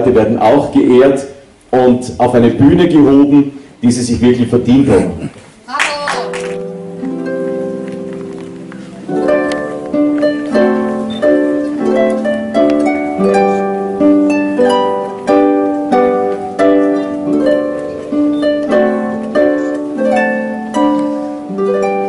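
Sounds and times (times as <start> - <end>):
harp playing: 6.2 - 22.0.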